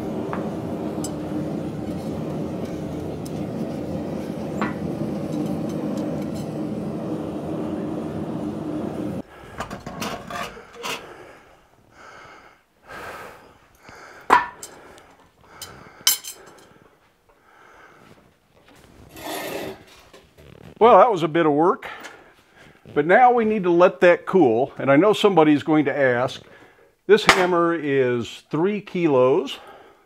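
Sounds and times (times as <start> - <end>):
steady roar: 0.0 - 9.2
tongs clanking on metal: 14.3 - 14.8, 15.6 - 16.7.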